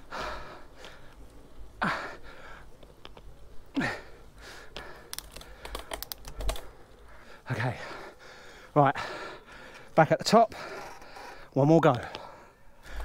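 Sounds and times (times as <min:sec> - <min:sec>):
cyclist breathing hard: 0:00.0 - 0:03.0, 0:03.6 - 0:13.0
sharp clicks: 0:04.8 - 0:06.7.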